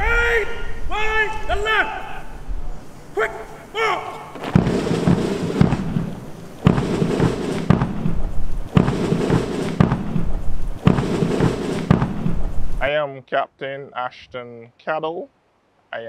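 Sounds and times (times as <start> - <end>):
dense rumble: 4.4 - 12.9
heavy booming hits: 4.4 - 12.9.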